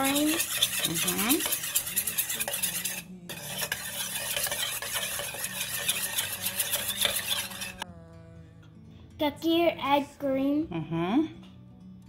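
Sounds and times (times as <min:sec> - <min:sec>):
spoon beating egg in metal bowl: 0:00.0 - 0:07.8.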